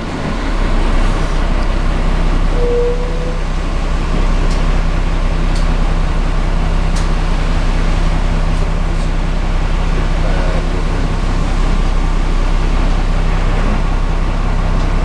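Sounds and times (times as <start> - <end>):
bus diesel engine idling: 0.0 - 15.0
short beep: 2.5 - 3.4.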